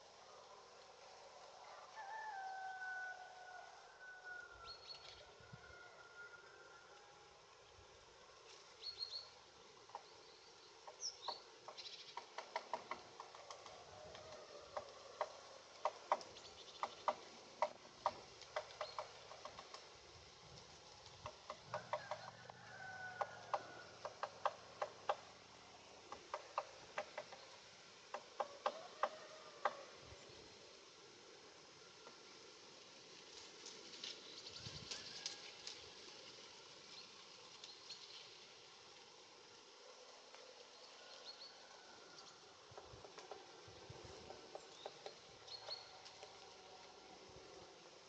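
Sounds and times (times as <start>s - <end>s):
woodpecker tapping on bark: 10.8s - 20.0s, 21.1s - 25.3s, 26.1s - 29.8s, 42.6s - 43.6s, 44.2s - 46.5s.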